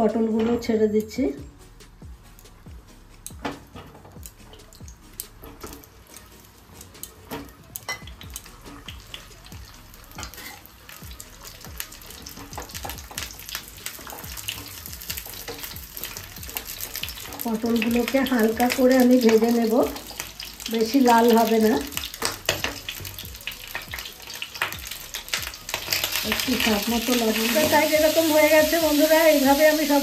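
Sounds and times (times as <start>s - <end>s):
vegetables sizzling in hot oil: 3.2s - 30.0s
spatula moving food in pan: 10.1s - 11.0s.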